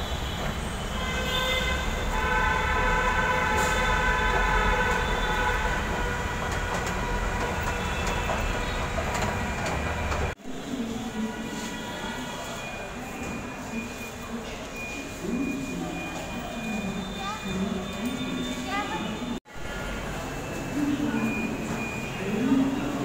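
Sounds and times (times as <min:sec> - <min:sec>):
metro train running past: 0:00.0 - 0:12.4.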